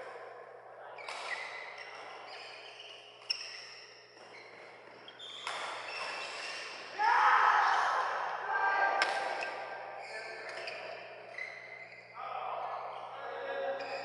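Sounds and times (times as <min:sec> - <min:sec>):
shoes squeaking on court: 0:00.9 - 0:06.9, 0:09.1 - 0:13.2, 0:13.8 - 0:14.0
racket hitting shuttlecock: 0:09.0 - 0:09.7.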